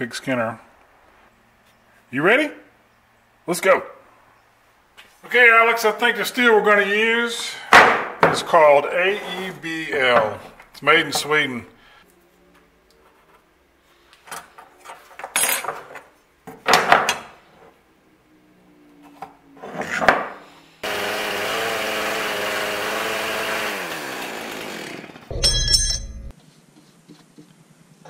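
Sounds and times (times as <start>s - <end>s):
bandsaw cutting steel: 20.8s - 26.3s.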